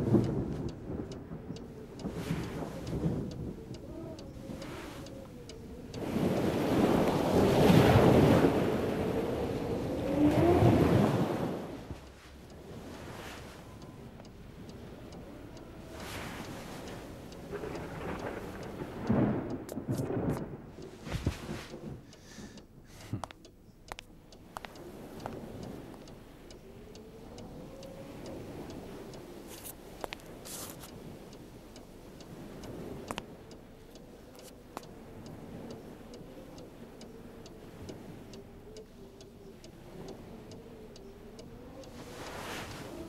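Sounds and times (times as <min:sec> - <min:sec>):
clock ticking: 0:00.0 - 0:11.2, 0:11.9 - 0:43.0
rumble of thunder: 0:00.0 - 0:11.8, 0:17.3 - 0:22.1.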